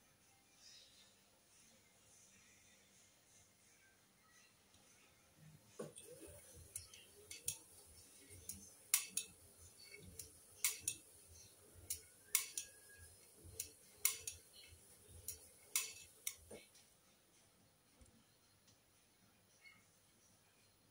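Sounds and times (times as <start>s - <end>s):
sharp clicks of turning drum: 11.9s - 12.7s.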